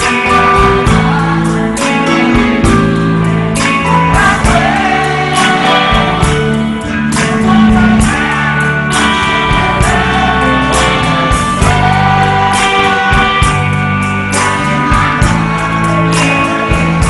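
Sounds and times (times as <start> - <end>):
live pop-rock band: 0.0 - 17.0
woman singing: 11.6 - 13.7.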